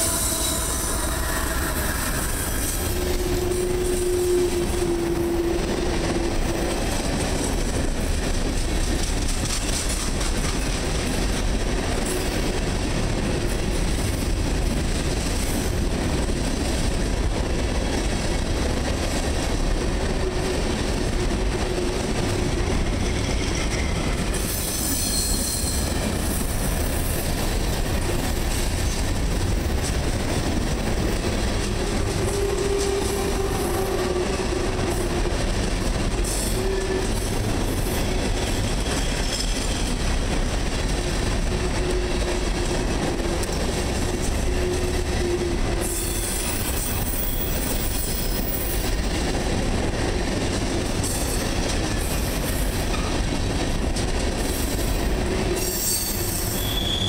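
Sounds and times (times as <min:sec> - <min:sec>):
train wheels rumbling and rattling: 0:00.0 - 0:57.0
wheel squeal: 0:55.6 - 0:57.0.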